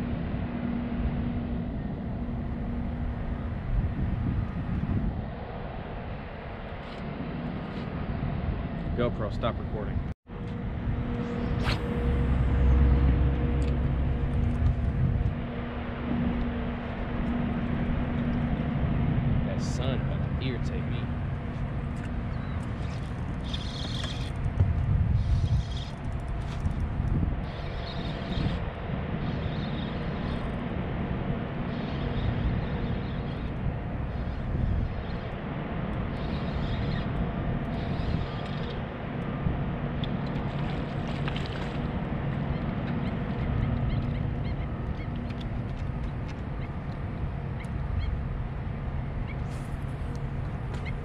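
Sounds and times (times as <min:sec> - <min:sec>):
steady low hum: 0:00.0 - 0:51.0
wind on microphone: 0:00.0 - 0:51.0
spinning reel whirring: 0:22.6 - 0:24.5, 0:25.1 - 0:30.6, 0:36.1 - 0:38.9.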